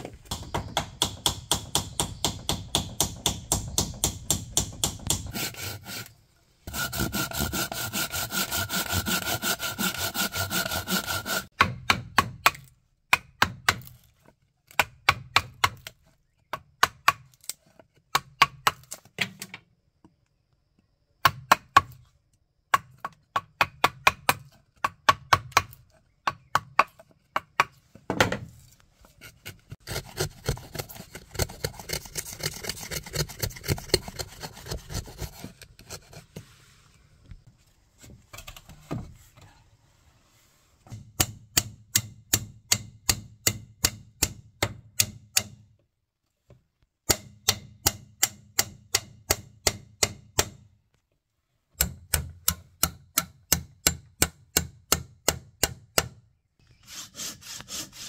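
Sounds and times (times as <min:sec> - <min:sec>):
rasping on wood: 0:05.0 - 0:06.1, 0:06.7 - 0:11.5, 0:29.2 - 0:36.4, 0:56.9 - 0:58.0
saw cutting wood: 0:05.1 - 0:11.5, 0:29.2 - 0:36.3, 0:56.8 - 0:58.0
mallet striking chisel: 0:40.9 - 0:45.6, 0:47.1 - 0:50.6.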